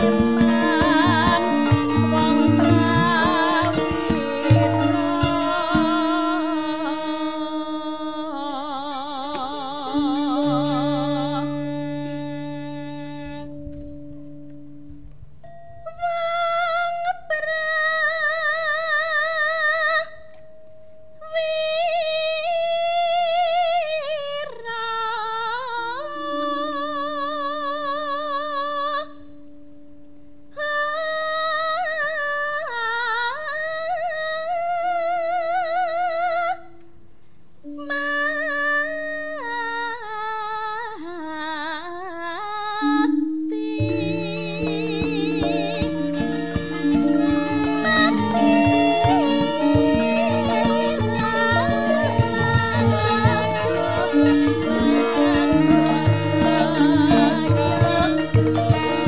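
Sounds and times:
woman singing with vibrato: 0.0 - 12.5, 15.8 - 20.4, 21.2 - 29.3, 30.6 - 36.8, 37.8 - 59.0
low sustained gamelan tones: 14.0 - 16.1, 43.0 - 59.0
struck bronze gamelan tones: 43.1 - 59.0.

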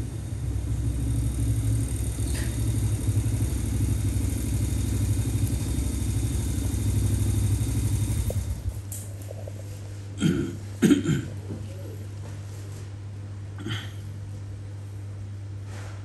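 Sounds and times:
fluttering motor rumble: 0.0 - 10.0.

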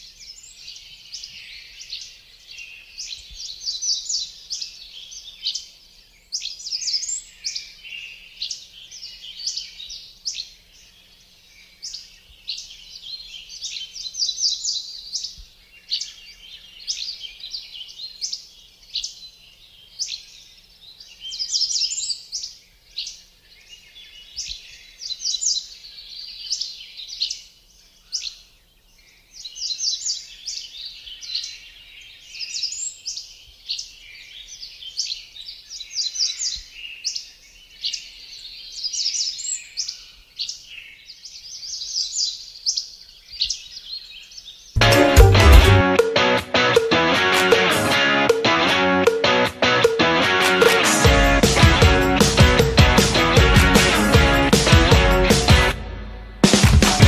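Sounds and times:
birds chirping and trilling: 0.0 - 45.1.

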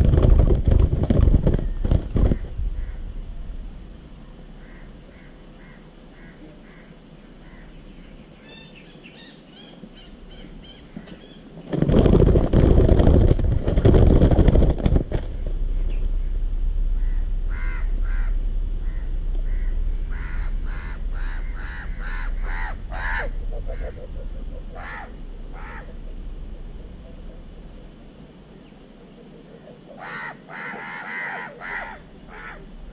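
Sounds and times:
loud rustling commotion: 0.0 - 3.7, 11.6 - 28.2
faint high bird calls: 1.6 - 3.2, 4.1 - 11.6, 15.4 - 32.9
crow cawing: 2.3 - 3.1, 4.6 - 7.8, 17.0 - 26.1, 29.9 - 32.7.

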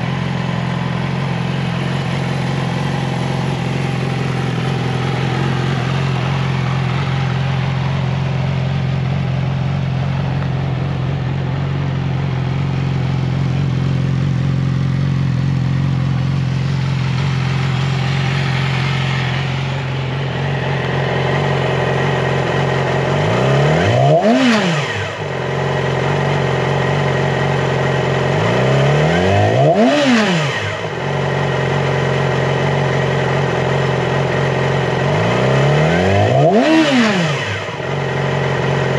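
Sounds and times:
motorcycle engine idling: 0.0 - 38.9
engine revs blipped: 16.7 - 26.0, 28.2 - 31.3, 35.1 - 38.9.

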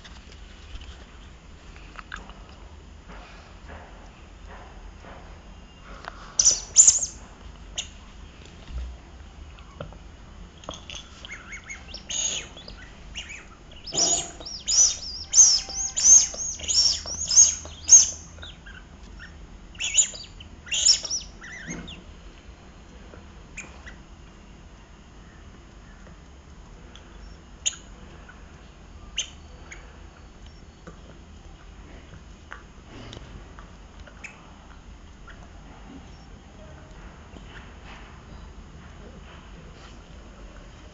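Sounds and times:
rubber squeaky toy squeaking: 13.9 - 18.2.

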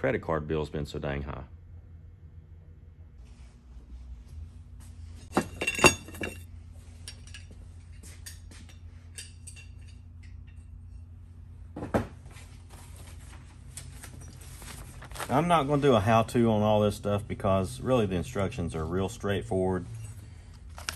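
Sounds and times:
low shop hum: 0.0 - 20.9
metal tools clattering on workbench: 5.3 - 10.7.

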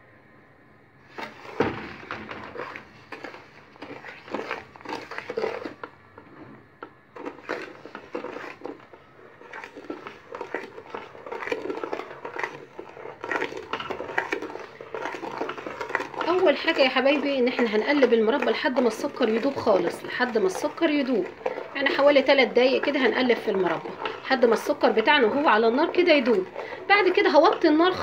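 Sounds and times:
spoon scraping aluminium pot: 1.1 - 6.6, 7.2 - 28.0.

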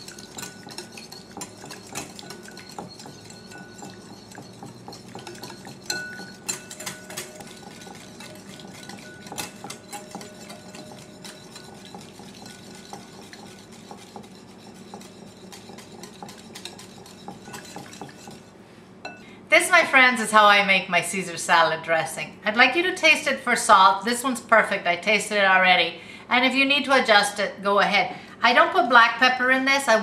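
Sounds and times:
whisk clinks on bowl: 0.0 - 18.5
whisk beating in ceramic bowl: 0.0 - 18.6.

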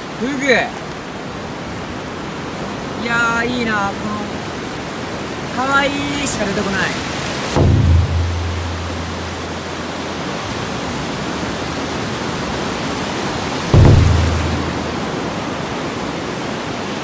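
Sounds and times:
waves washing up a beach: 0.0 - 17.0
low rumble: 7.6 - 10.1, 13.8 - 15.2.

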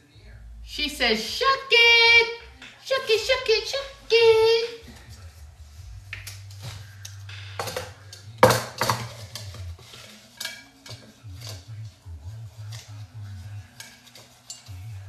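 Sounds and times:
hard objects clicking and clattering: 6.2 - 11.6.

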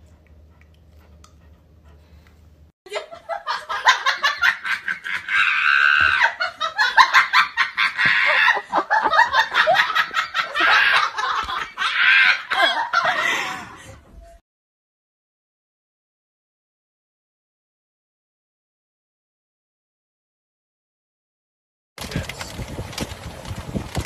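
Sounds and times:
person laughing hard: 2.9 - 14.0.

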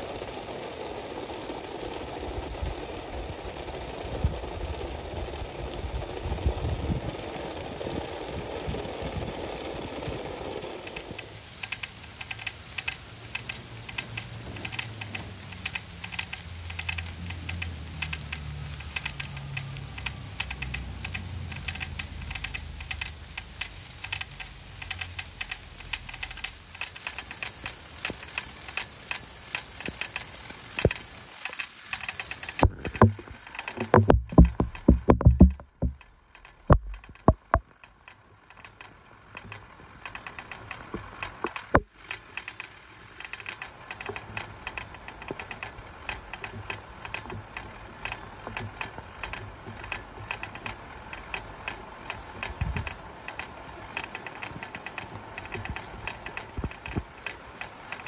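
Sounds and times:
water spraying: 0.0 - 37.6, 39.4 - 58.0
sprinkler ticking rattle: 0.0 - 58.0.

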